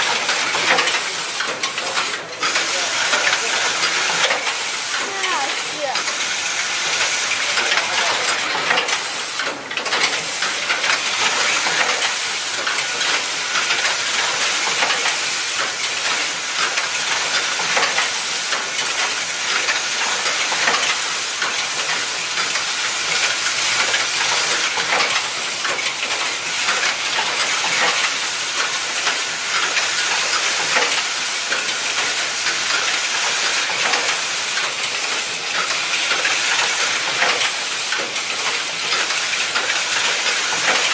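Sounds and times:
vibratory feeders rattling metal parts: 0.0s - 40.9s.

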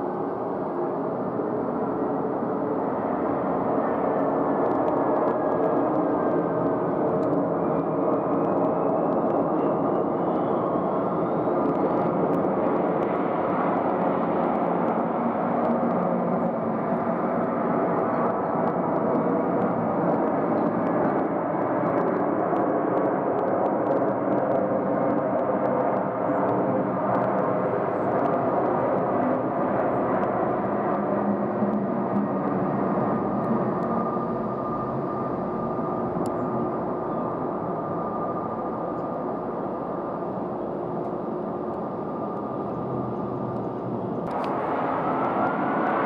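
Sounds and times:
faint rising whine: 29.0s - 46.0s.

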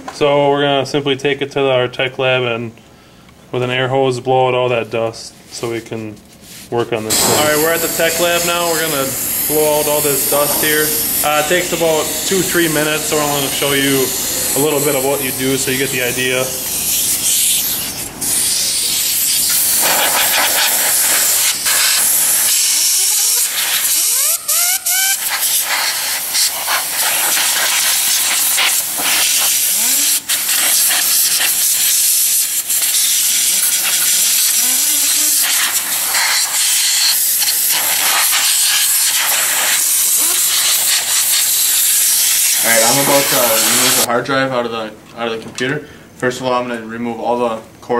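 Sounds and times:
compressed air hose hissing: 6.3s - 44.1s.

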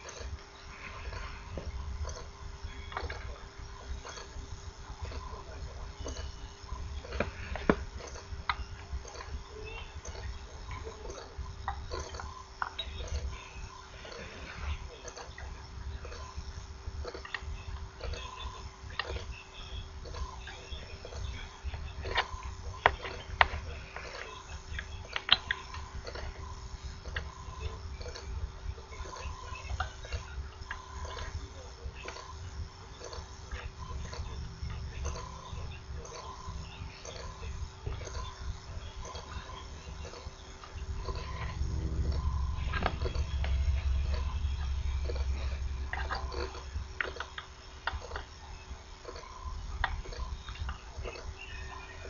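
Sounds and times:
faint steady hum: 0.0s - 52.0s
low rumble: 40.8s - 47.9s.

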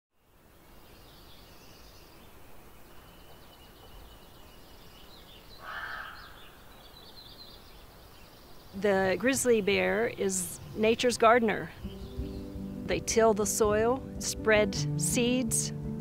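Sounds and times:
small birds chirping: 0.2s - 15.7s
loud bird call: 5.6s - 6.9s.

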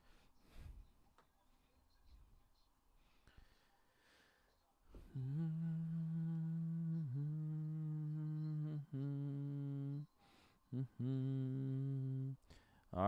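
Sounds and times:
man humming held notes: 5.0s - 10.1s, 10.7s - 12.4s.

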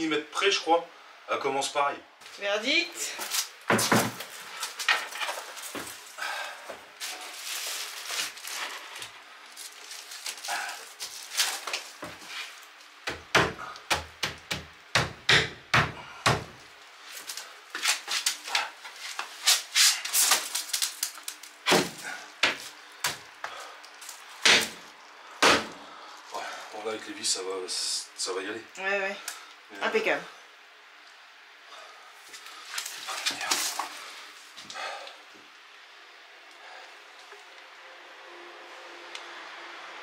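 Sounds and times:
wooden thumps and knocks: 3.7s - 4.3s.

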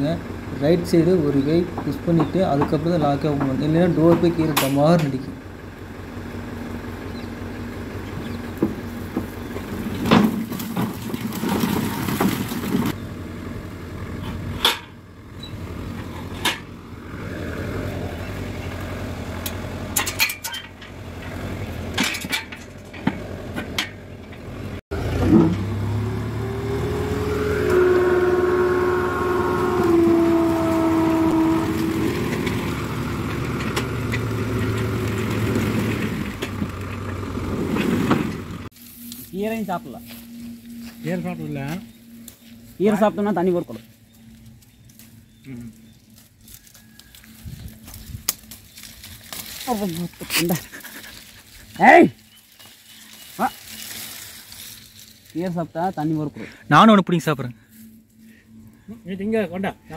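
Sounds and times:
tractor engine running: 0.0s - 59.9s
metal clanks and knocks: 8.6s - 13.0s, 14.2s - 15.0s, 19.4s - 24.5s
hydraulic whine: 23.1s - 43.7s.

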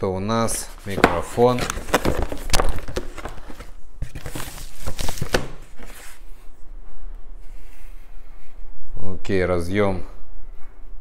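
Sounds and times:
cardboard packaging rustling: 0.4s - 6.3s.

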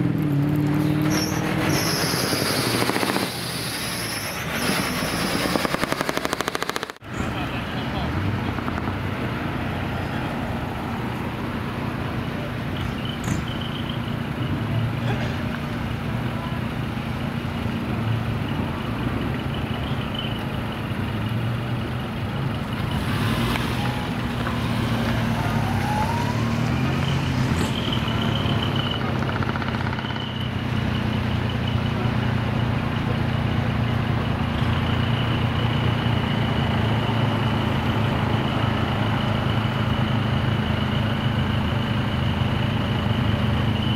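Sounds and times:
diesel truck engines running: 0.0s - 43.9s.

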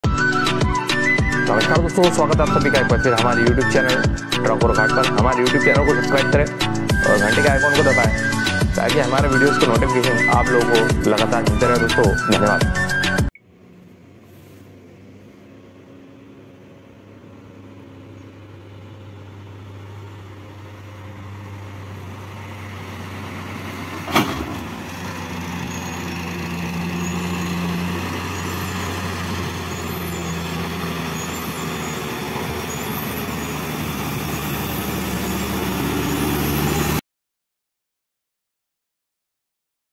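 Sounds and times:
truck and car engines: 0.0s - 37.0s
loud bang from car: 24.1s - 24.6s.

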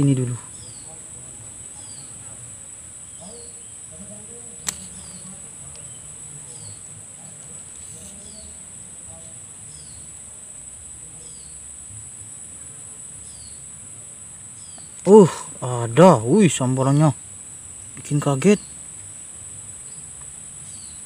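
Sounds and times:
high-pitched insect drone: 0.0s - 21.0s
sharp click: 4.6s - 5.1s.

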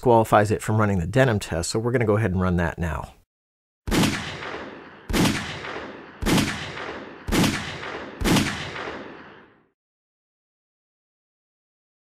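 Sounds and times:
pistol shots: 3.9s - 9.7s.

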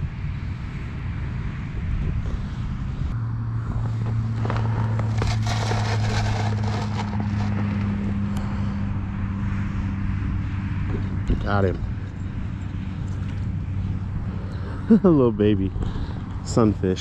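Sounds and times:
low motor hum: 0.0s - 17.0s
rumbling background: 0.0s - 17.0s
crackling and rustling handling: 4.0s - 8.4s.

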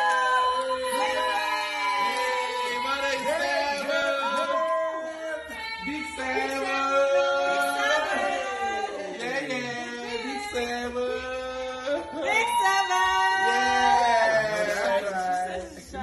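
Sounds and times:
voices singing a song: 0.0s - 16.0s.

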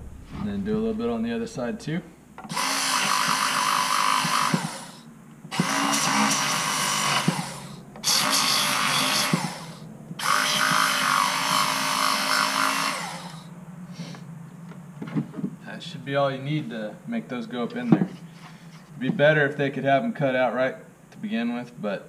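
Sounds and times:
power sander whining and grinding: 2.4s - 14.2s.

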